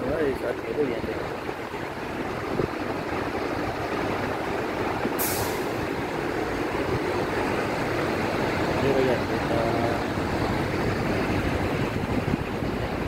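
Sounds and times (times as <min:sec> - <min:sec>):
diesel truck engine idling: 0:00.0 - 0:13.0
air brake hiss: 0:05.2 - 0:05.7.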